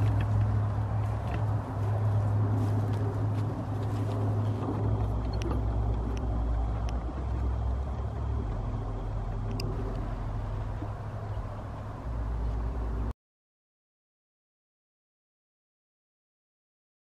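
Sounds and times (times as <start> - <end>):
garden tiller engine running: 0.0 - 13.1
faint clicks: 4.6 - 10.1.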